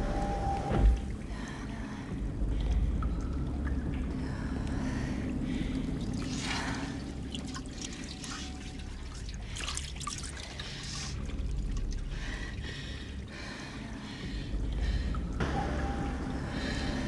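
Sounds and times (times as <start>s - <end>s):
low rumble: 0.0s - 17.0s
water trickling and splashing: 2.4s - 15.0s.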